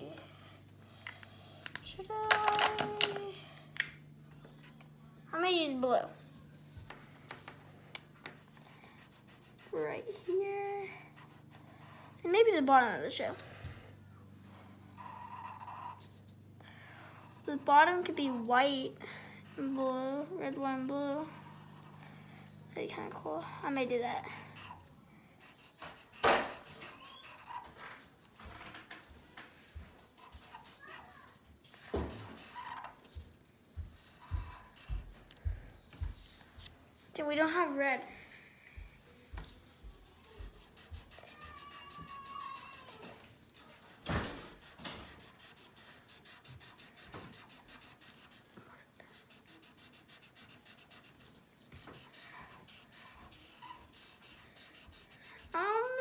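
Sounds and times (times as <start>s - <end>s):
marker scratching on paper: 6.5s - 13.8s, 14.8s - 16.4s, 19.5s - 36.5s, 39.4s - 56.0s.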